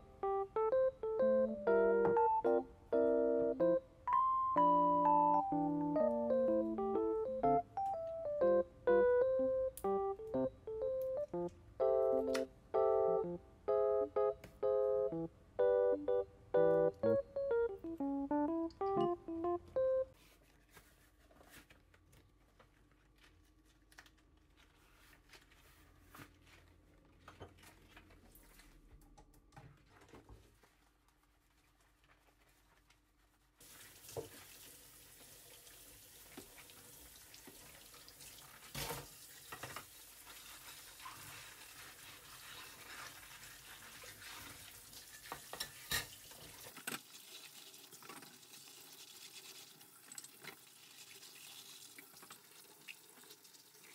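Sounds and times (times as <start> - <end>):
tap water running into sink: 33.6 - 41.3, 44.4 - 53.9.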